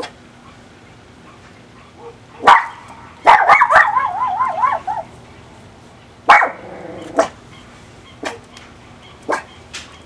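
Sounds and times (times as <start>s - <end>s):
dog barking: 1.8s - 5.1s, 6.3s - 7.4s, 8.2s - 8.4s, 9.3s - 9.6s
dog warbling cry: 1.9s - 5.1s, 6.3s - 7.4s.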